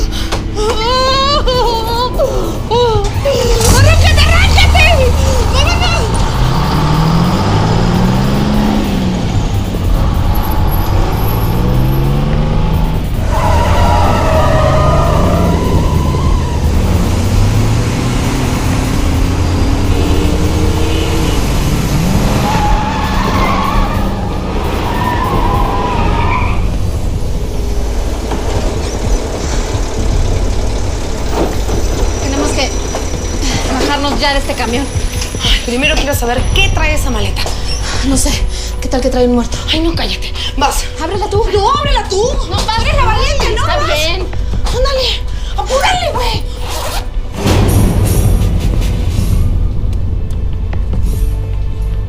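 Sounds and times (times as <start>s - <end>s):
truck engine accelerating: 0.0s - 52.0s
tires squealing: 0.4s - 39.1s.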